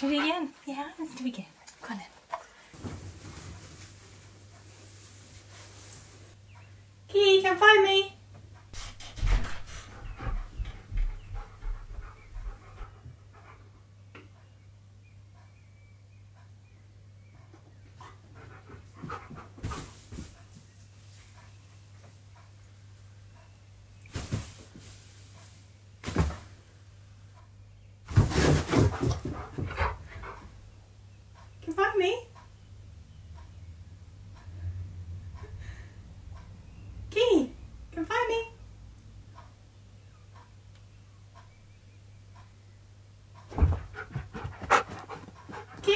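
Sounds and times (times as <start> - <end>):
dog panting: 0.0 - 2.7, 9.6 - 14.0, 17.4 - 20.5, 28.8 - 30.8, 43.4 - 45.9
dog paws thudding: 8.8 - 13.2, 28.1 - 30.6, 43.5 - 45.9
thuds of movement: 28.1 - 30.0, 43.5 - 45.8.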